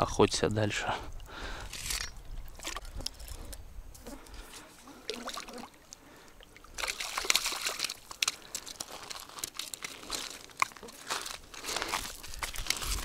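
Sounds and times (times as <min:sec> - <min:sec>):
footsteps crunching on gravel: 0:08.2 - 0:13.0.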